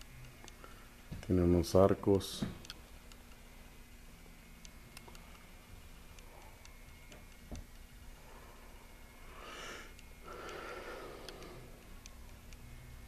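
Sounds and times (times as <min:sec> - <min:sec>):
person breathing close to microphone: 0:08.2 - 0:11.8
faint clicks: 0:09.9 - 0:12.7.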